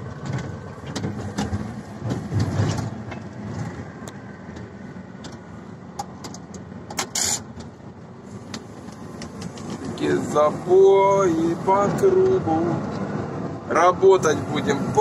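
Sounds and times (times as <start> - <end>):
cab rattles and clicks: 0.0 - 7.8, 8.5 - 10.0
diesel truck engine rumble: 0.0 - 15.0.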